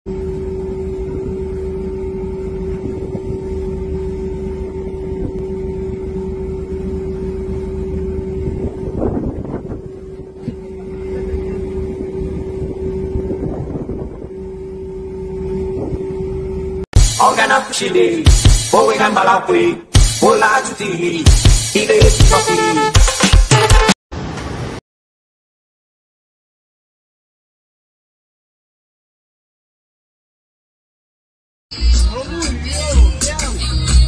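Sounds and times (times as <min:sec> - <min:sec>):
engine drone: 0:00.1 - 0:18.8
wind noise on microphone: 0:00.8 - 0:16.6.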